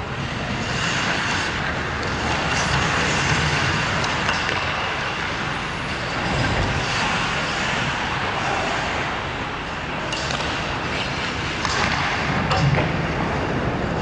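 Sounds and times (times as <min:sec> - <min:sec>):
skates scraping on ice: 0:00.2 - 0:05.3, 0:06.1 - 0:09.1
low rumble: 0:06.1 - 0:07.5
hockey stick taps: 0:10.1 - 0:10.6, 0:11.6 - 0:12.9.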